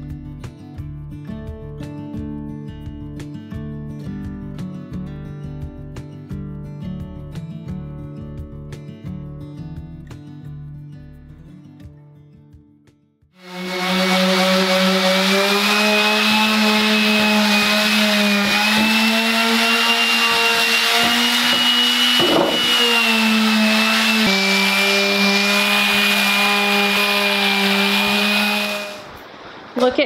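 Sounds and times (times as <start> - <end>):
electric sander motor whine: 13.4 - 29.2.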